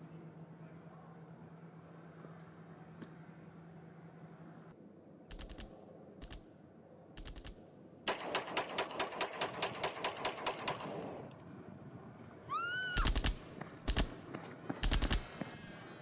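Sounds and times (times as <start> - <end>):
sharp clicks: 5.3 - 6.4, 7.2 - 11.4, 13.0 - 14.2, 14.8 - 15.3.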